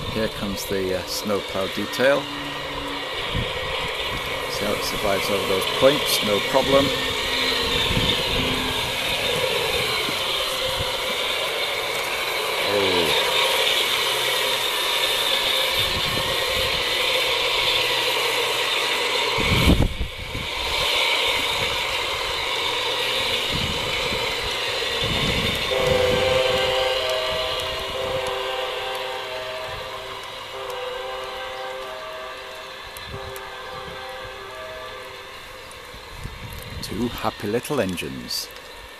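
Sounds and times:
low rumble: 0:00.0 - 0:12.5
model locomotive motor whir: 0:00.0 - 0:38.9.

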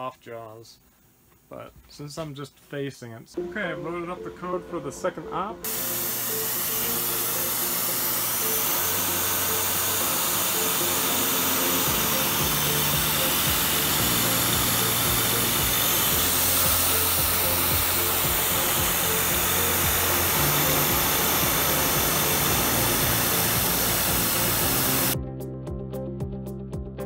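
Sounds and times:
milling machine cutting metal hiss: 0:05.6 - 0:25.2
background music with bass line: 0:08.8 - 0:27.0.

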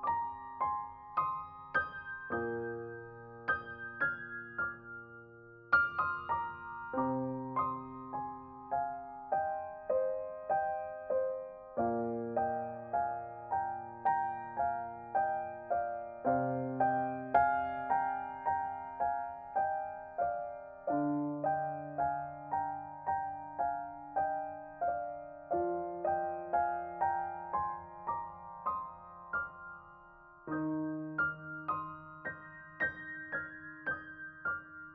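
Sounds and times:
gentle solo piano music: 0:00.0 - 0:34.9.

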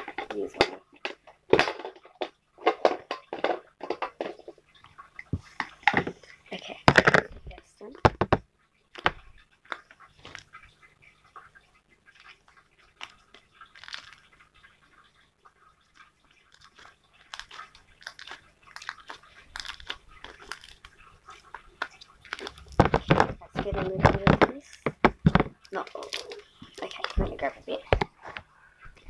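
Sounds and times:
slime squishing and crackling: 0:12.1 - 0:15.0, 0:15.7 - 0:29.0.

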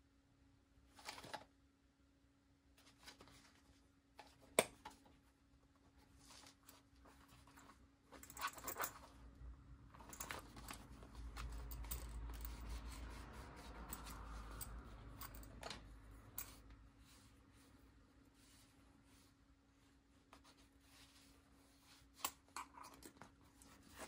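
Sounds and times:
tools clicking and tapping: 0:13.8 - 0:16.7.

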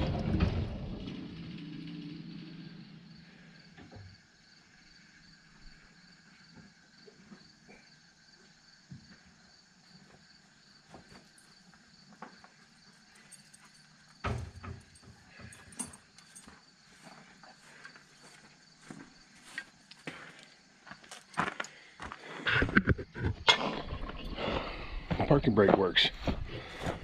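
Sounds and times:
insects chirring: 0:01.6 - 0:27.0
footsteps on gravel: 0:16.4 - 0:22.4, 0:24.4 - 0:27.0.

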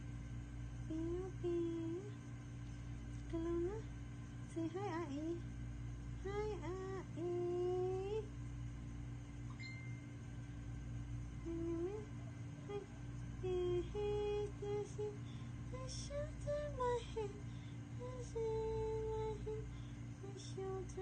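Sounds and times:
low background hum: 0:00.0 - 0:21.0
woman humming a lullaby: 0:00.8 - 0:02.2, 0:03.3 - 0:03.9, 0:06.2 - 0:08.3, 0:11.4 - 0:17.4, 0:18.0 - 0:21.0.

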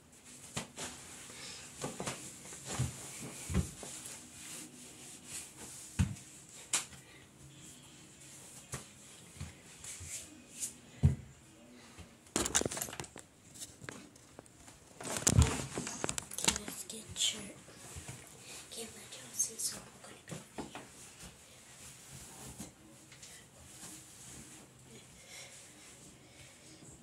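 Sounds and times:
handling noise on microphone: 0:12.3 - 0:17.3.

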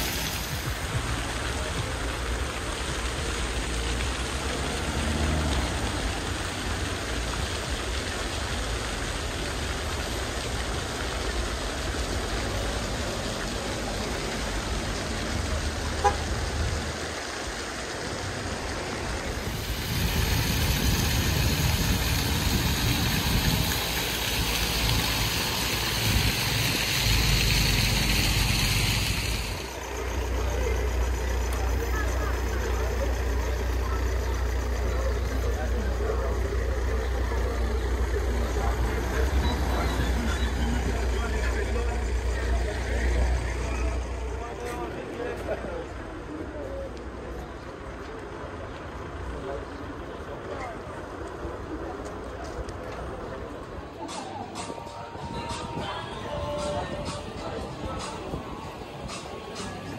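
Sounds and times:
car traffic hum: 0:00.0 - 0:59.9
fountain water splashing: 0:00.0 - 0:59.9.

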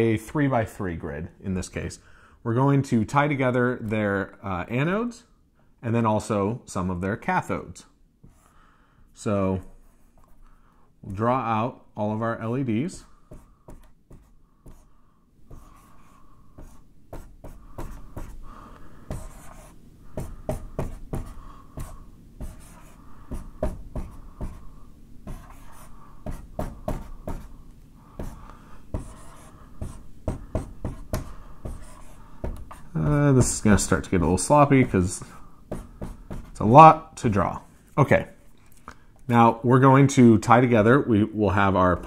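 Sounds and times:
marker drawing on whiteboard: 0:08.2 - 0:08.6, 0:09.6 - 0:10.4, 0:12.5 - 0:27.6, 0:28.2 - 0:37.0.

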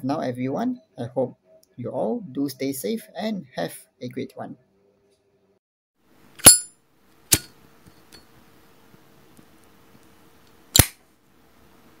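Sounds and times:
faint steady hum: 0:00.0 - 0:12.0
lighter flint wheel strike: 0:10.8 - 0:11.0.

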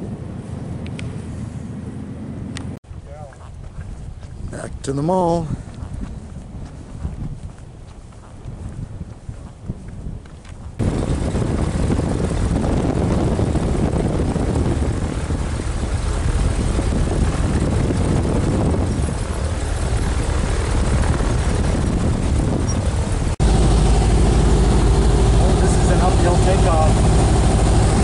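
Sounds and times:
plane engine and propeller running: 0:00.0 - 0:28.0.

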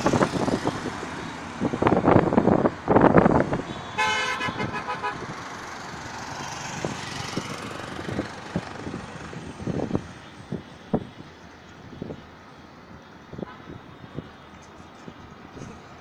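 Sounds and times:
road traffic noise: 0:00.0 - 0:16.0
vehicle horn toot: 0:03.7 - 0:05.2.

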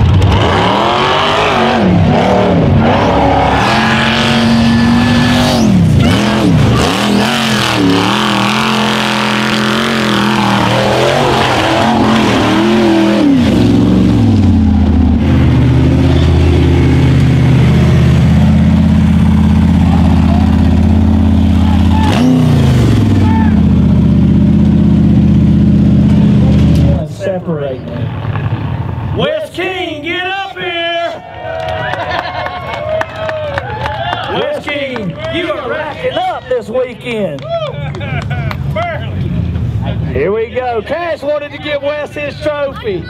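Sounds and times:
buggy engine revving: 0:00.0 - 0:29.2.

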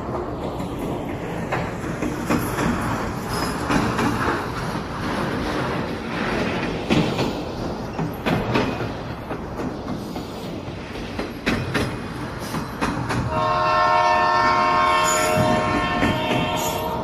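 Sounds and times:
train wheels rumbling: 0:00.0 - 0:17.0
wheels clacking over rail joints: 0:00.0 - 0:17.0
multi-tone train horn: 0:13.3 - 0:17.0.

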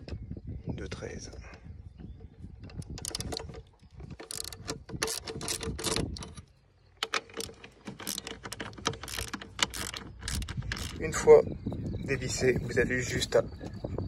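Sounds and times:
ratchet clicking: 0:02.7 - 0:03.5, 0:04.1 - 0:06.4, 0:07.0 - 0:11.1.

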